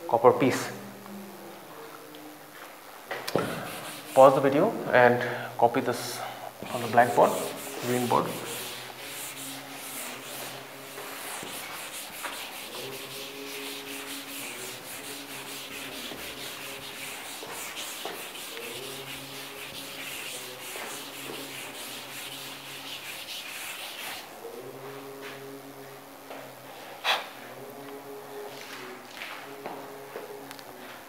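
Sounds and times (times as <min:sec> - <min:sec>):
duster rubbing on chalkboard: 0:03.3 - 0:04.8, 0:06.6 - 0:24.3.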